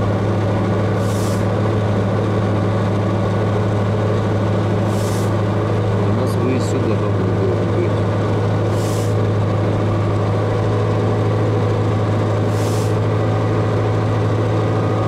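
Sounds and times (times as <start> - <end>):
truck engine drone: 0.0 - 15.0
short hisses: 1.0 - 1.5, 4.8 - 5.4, 8.7 - 9.2, 12.5 - 13.0.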